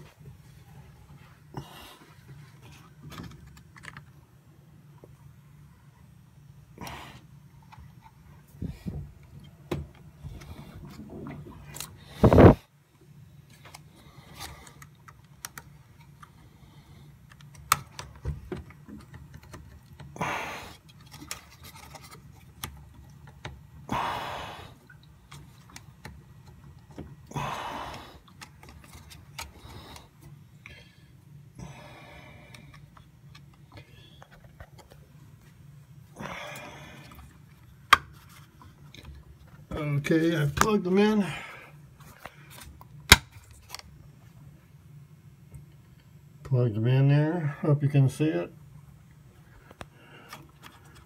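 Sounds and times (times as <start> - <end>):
rustling handling noise: 17.2 - 23.7.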